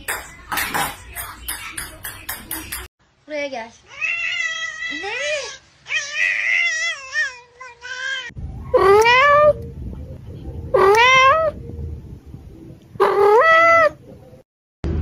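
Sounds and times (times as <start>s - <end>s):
cat meowing: 5.9s - 9.6s, 10.7s - 11.6s, 13.0s - 14.0s.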